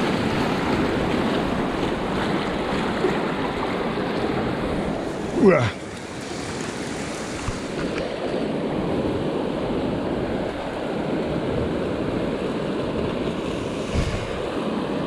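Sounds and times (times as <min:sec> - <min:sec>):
river water rushing over stones: 0:00.0 - 0:15.0.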